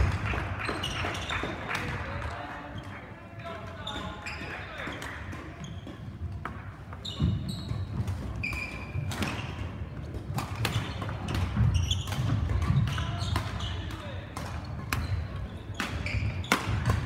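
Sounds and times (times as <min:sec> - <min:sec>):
shoes squeaking: 0:00.6 - 0:01.7, 0:03.8 - 0:06.3, 0:06.9 - 0:17.0
racket hitting shuttlecock: 0:07.2 - 0:17.0.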